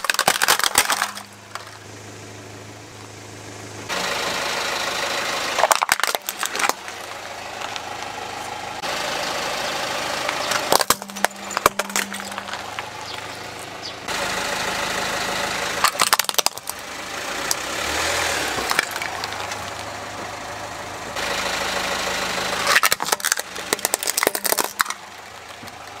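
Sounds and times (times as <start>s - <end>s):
plastic toys cracking and snapping: 0.0s - 1.8s, 5.6s - 7.0s, 10.5s - 12.8s, 15.8s - 16.8s, 18.6s - 19.8s, 22.7s - 25.9s
car engine running low: 0.0s - 26.0s.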